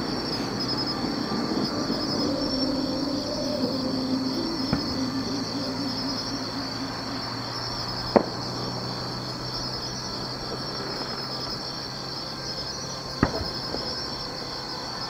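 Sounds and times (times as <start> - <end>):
insects chirring: 0.0 - 15.0
distant firework bangs: 13.2 - 14.0.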